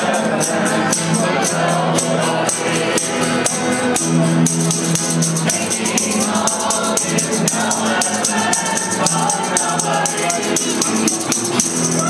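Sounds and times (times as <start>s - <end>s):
many voices singing: 0.0s - 12.0s
tambourine shaking: 0.0s - 12.0s.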